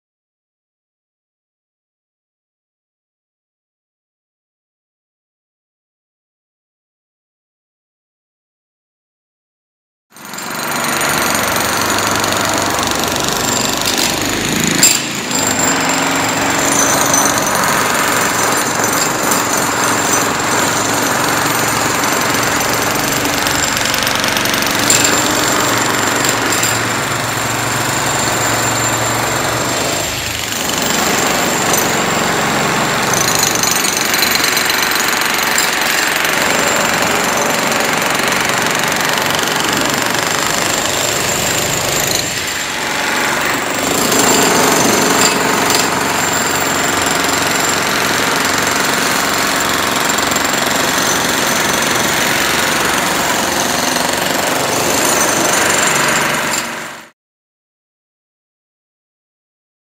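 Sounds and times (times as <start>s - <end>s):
demolition hammers on concrete: 10.2s - 57.1s.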